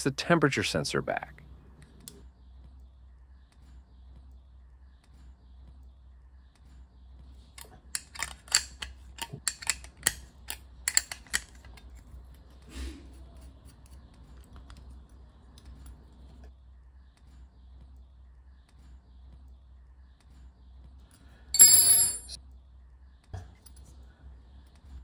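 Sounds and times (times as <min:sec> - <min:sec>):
spanner clicking on nut: 0:07.6 - 0:11.9
handling noise: 0:21.6 - 0:22.4.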